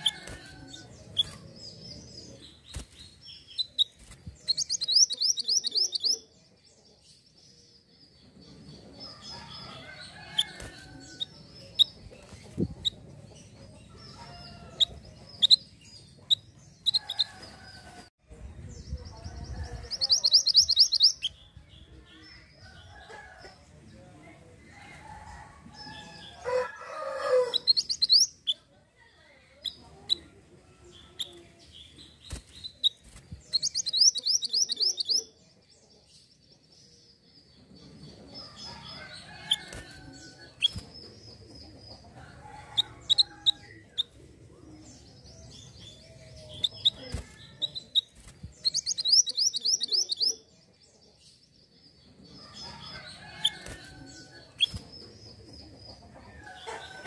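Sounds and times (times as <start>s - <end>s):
bird chirps: 0.0s - 6.3s, 7.1s - 17.7s, 19.8s - 21.6s, 27.4s - 28.6s, 31.0s - 35.4s, 42.8s - 56.8s
rooster crowing: 25.2s - 27.6s.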